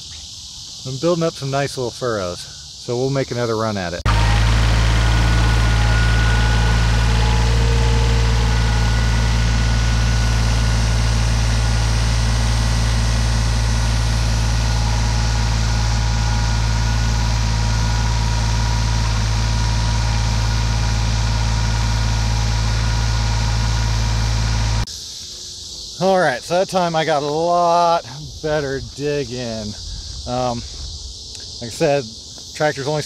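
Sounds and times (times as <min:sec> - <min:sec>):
tractor engine under load: 0:04.1 - 0:24.9.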